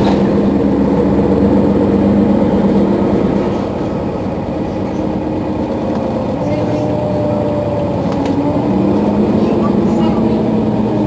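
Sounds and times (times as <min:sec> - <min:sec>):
bus engine idling: 0:00.0 - 0:11.0.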